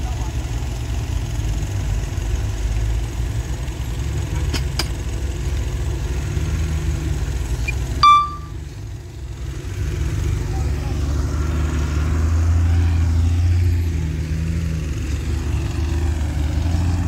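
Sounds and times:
truck engines rumbling: 0.0 - 17.0
short high beep: 7.7 - 8.6.

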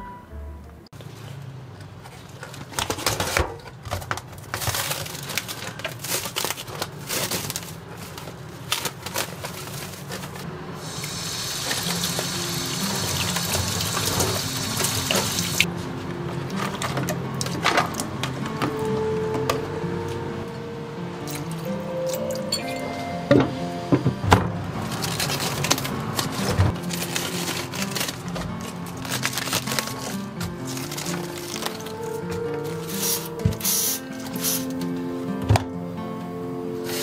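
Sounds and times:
plastic wrap crinkling: 2.0 - 10.5, 24.8 - 34.8
kitchen tap running: 10.8 - 15.6.

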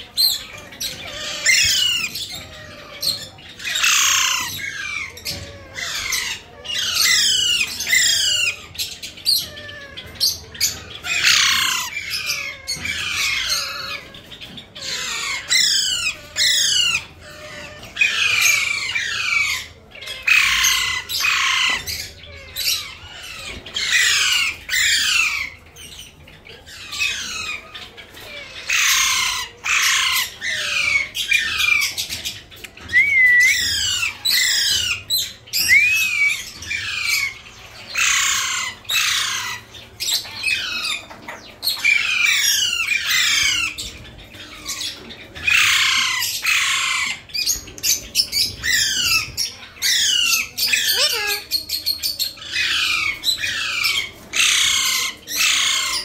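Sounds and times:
parakeets squawking: 0.0 - 56.0
whistled bird notes: 32.6 - 37.4.

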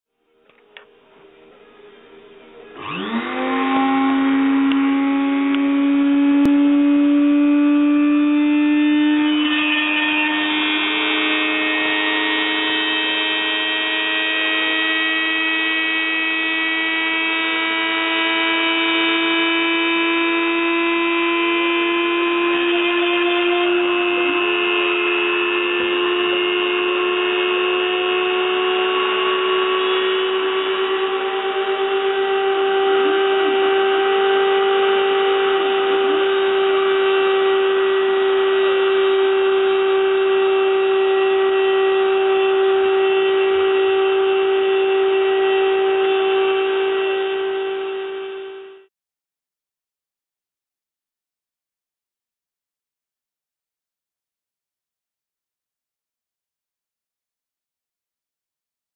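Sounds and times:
cnc spindle motor whining: 0.5 - 48.9
bit engraving plywood: 2.7 - 48.7.

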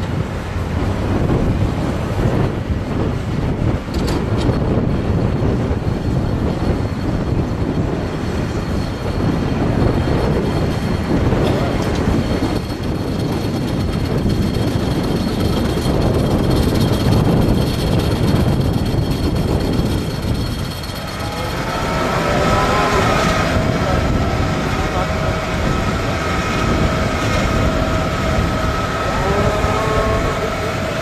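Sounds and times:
tractor engine and machinery: 5.8 - 31.0
faint high whine: 20.0 - 31.0.

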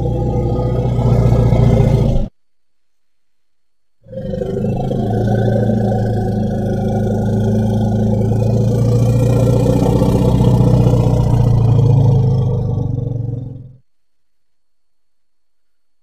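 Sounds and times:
elephant rumbling: 0.0 - 2.3, 4.0 - 13.8.

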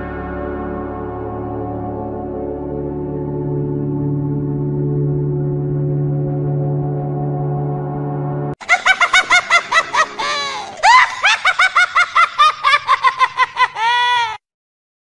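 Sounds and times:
man's rapid high-pitched laughter: 8.6 - 14.4.

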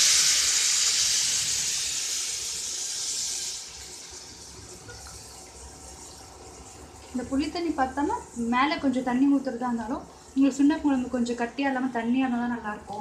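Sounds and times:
liquid hissing in hot oil: 0.0 - 13.0.

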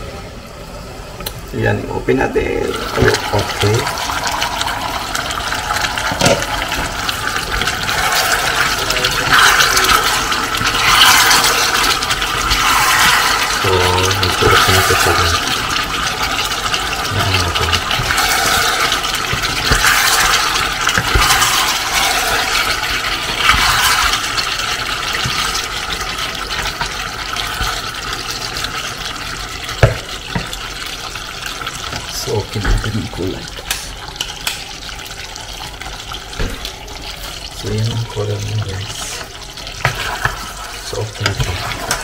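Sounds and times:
sauce sizzling and bubbling in pot: 0.0 - 42.0
wooden spatula stirring: 6.2 - 28.9, 37.0 - 42.0.

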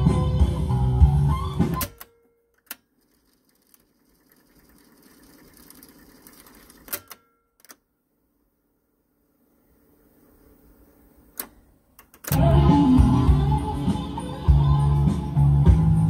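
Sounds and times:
cassette deck key clicks: 1.7 - 2.8
tape rewinding whir: 3.0 - 7.1
tape music: 12.3 - 16.0.

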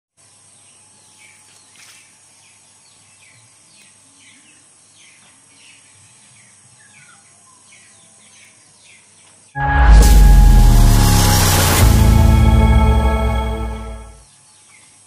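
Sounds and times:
outdoor background hiss: 0.2 - 9.5.

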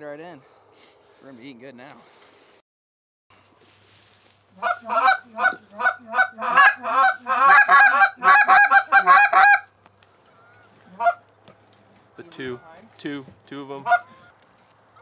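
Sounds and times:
goose honking: 4.5 - 9.7, 10.3 - 11.3, 13.8 - 14.4.

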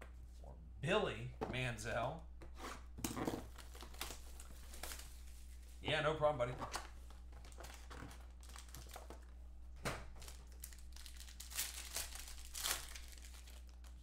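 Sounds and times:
foil wrapper crinkling and tearing: 7.4 - 9.3, 10.2 - 14.0.

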